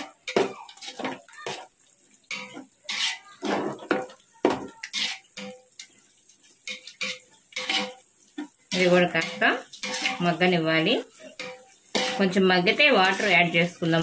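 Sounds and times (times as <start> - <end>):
ladle scraping cooking pot: 0.3 - 1.6, 2.3 - 5.6, 6.7 - 8.0, 8.7 - 10.4, 11.1 - 12.3.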